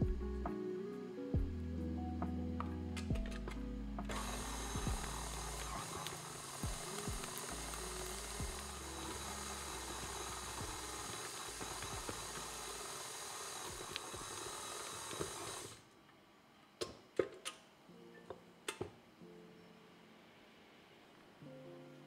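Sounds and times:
soft background music: 0.0 - 14.3, 17.2 - 22.0
stand mixer kneading dough: 4.1 - 15.7.

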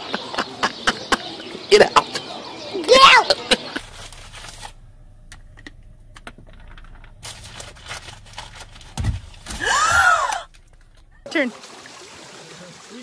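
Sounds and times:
person shrieking: 9.6 - 10.5.

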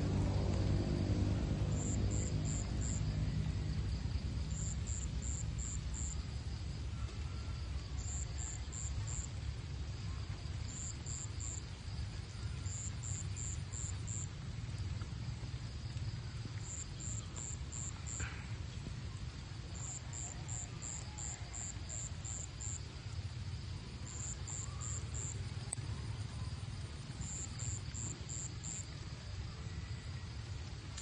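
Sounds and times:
steady low rumble: 0.0 - 19.8.

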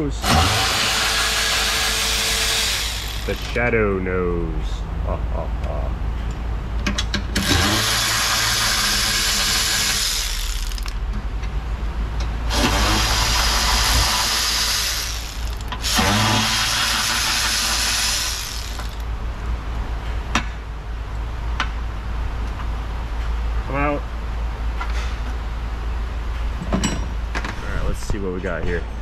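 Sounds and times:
electric ratchet motor whirring: 0.2 - 3.6, 7.4 - 11.0, 12.5 - 19.0.

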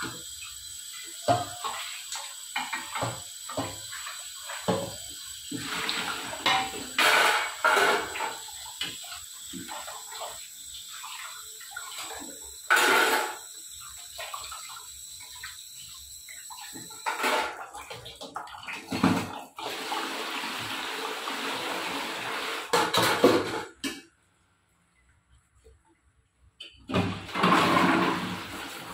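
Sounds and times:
water splashing off dishes: 0.0 - 24.0, 26.8 - 28.9
tap running into steel sink: 2.5 - 3.9
pots clattering together: 5.6 - 8.4, 12.7 - 13.4, 16.9 - 17.7, 22.7 - 24.0, 26.9 - 28.5.

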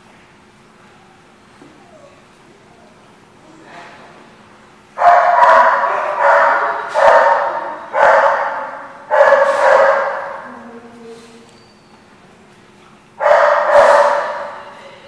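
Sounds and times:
dog barking: 5.0 - 10.8, 13.2 - 14.8.

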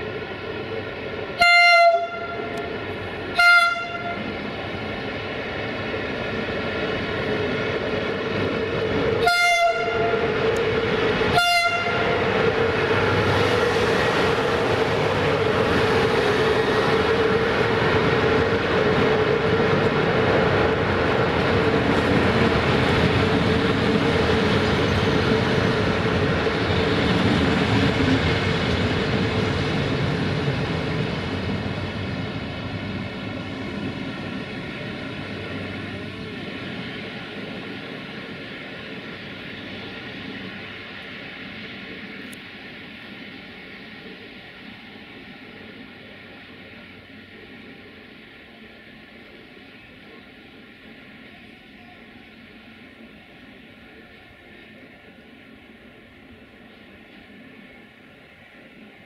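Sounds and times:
train hum: 0.0 - 59.0
train wheels rumbling on rails: 0.0 - 59.0
locomotive horn blasts: 1.4 - 2.6, 3.3 - 4.2, 9.2 - 10.2, 11.3 - 12.2.

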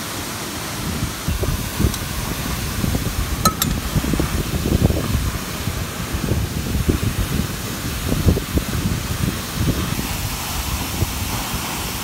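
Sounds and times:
waterfall rushing: 0.0 - 12.0
wind buffeting microphone: 0.7 - 12.0
ladle clinking metal pot: 3.4 - 3.8.

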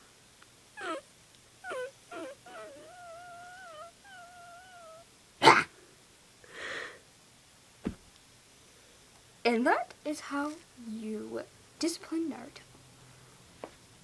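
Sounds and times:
person giving high cries: 0.8 - 1.0, 1.6 - 5.0
loud thump: 7.8 - 8.1.

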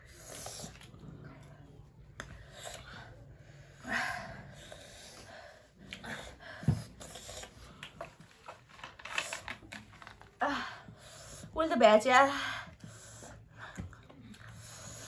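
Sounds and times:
breathy sniffs: 4.5 - 7.7.

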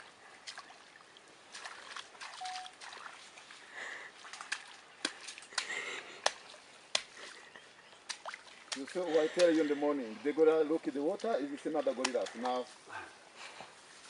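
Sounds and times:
hands splashing in muddy puddle: 0.4 - 9.8, 11.2 - 12.7.

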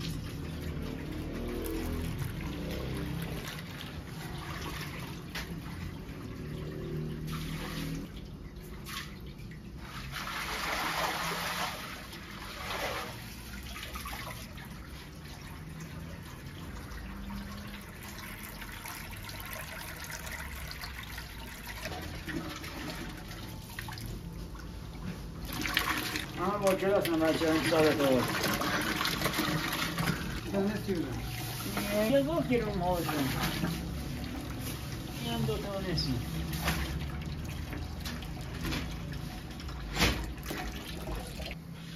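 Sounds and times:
tap water running into steel bowl: 25.4 - 34.4.

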